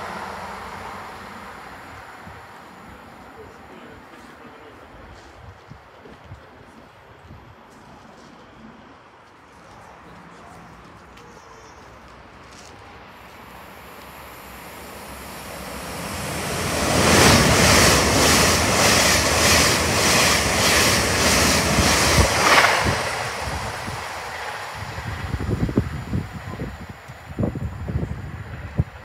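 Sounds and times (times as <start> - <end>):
train passing at speed: 0.0 - 29.0.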